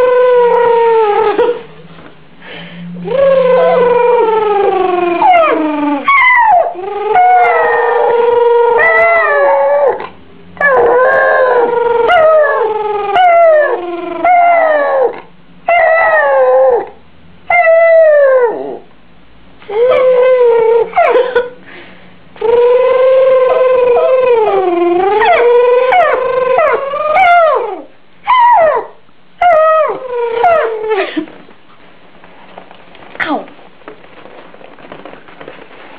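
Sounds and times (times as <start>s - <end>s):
dog howling: 0.0s - 1.6s, 3.0s - 18.9s, 19.7s - 21.2s, 22.4s - 31.1s.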